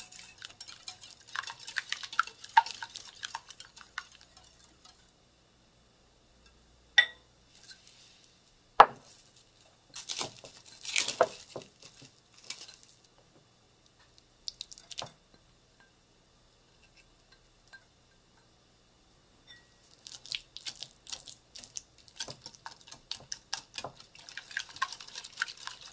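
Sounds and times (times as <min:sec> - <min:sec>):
spatula scraping glass bowl: 0:00.0 - 0:05.0
whisk clinking on glass bowl: 0:00.0 - 0:05.0.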